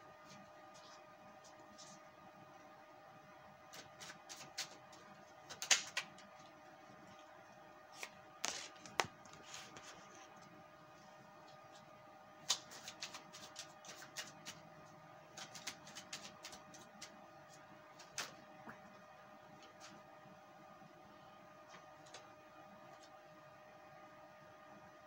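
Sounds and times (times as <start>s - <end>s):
faint steady hum: 0.0s - 25.0s
cards being shuffled: 3.7s - 6.5s, 7.9s - 10.1s, 11.6s - 14.7s, 15.3s - 18.4s.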